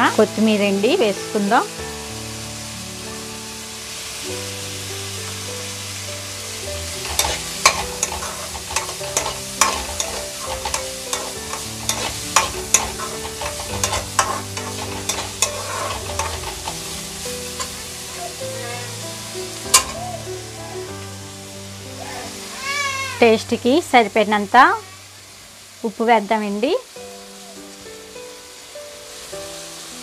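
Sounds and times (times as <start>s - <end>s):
light sizzle: 0.0s - 30.0s
spatula scraping a steel pan: 7.0s - 16.9s, 19.7s - 20.0s.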